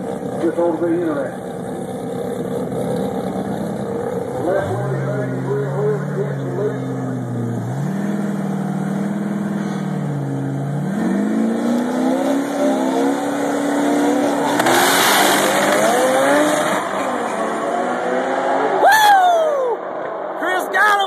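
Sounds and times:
drag car engines revving: 0.0 - 19.0
drag cars launching: 0.1 - 20.4
loud falling cry: 18.7 - 20.0.

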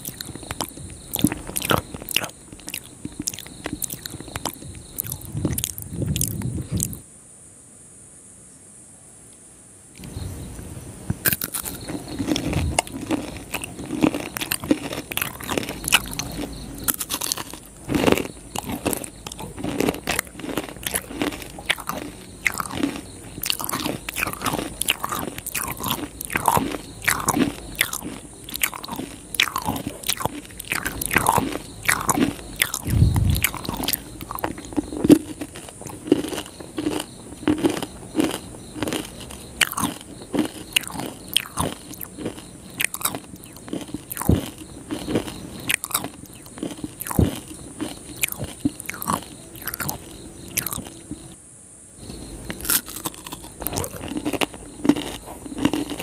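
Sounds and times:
crunchy chewing: 0.0 - 7.0, 10.0 - 51.4, 52.0 - 56.0
wet mouth clicks: 0.0 - 7.0, 27.1 - 35.2.

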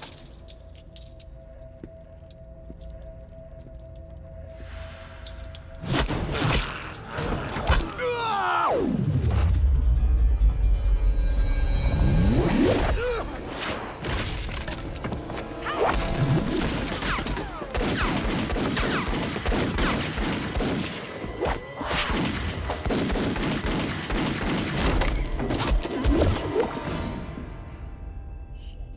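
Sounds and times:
pistol shots: 16.6 - 21.3, 21.9 - 25.2.

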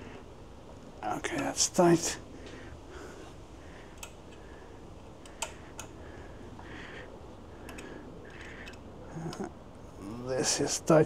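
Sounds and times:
allen key clicking in screw head: 7.7 - 8.8.

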